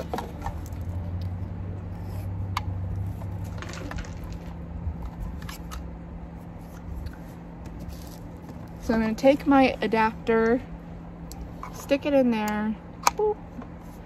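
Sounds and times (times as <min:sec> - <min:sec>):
low background rumble: 0:00.0 - 0:14.0
bag and plastic clicks and rustles: 0:03.0 - 0:04.5.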